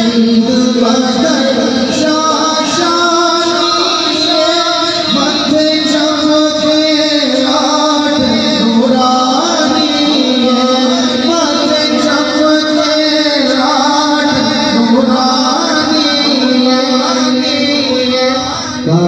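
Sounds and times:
man singing into a microphone: 0.0s - 19.0s.

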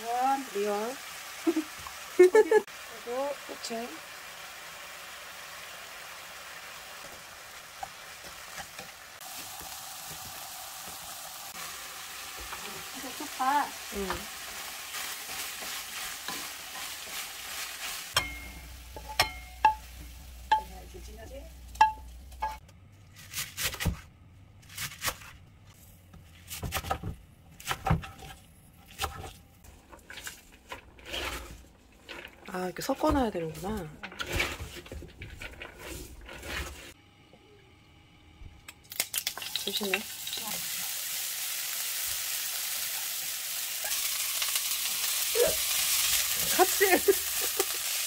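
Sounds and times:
meat sizzling in frying pan: 0.0s - 20.6s, 39.0s - 48.0s
utensil scraping in cookware: 12.3s - 20.8s, 28.0s - 37.0s.

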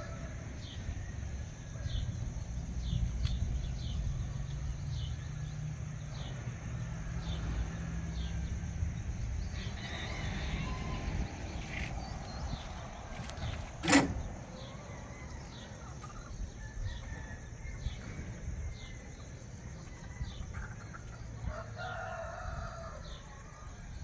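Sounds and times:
rooster crowing: 0.0s - 2.0s, 9.5s - 11.6s, 14.5s - 15.9s, 16.6s - 18.1s, 21.4s - 23.9s.

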